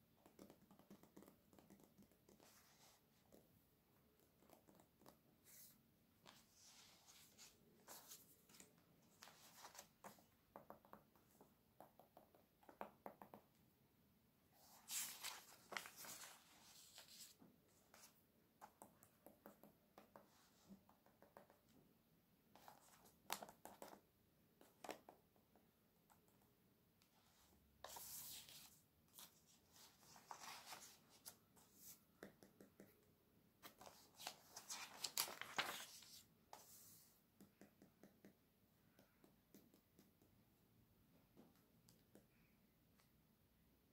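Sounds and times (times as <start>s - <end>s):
magazine pages rustling: 14.8s - 17.3s, 30.0s - 31.3s, 33.7s - 36.2s.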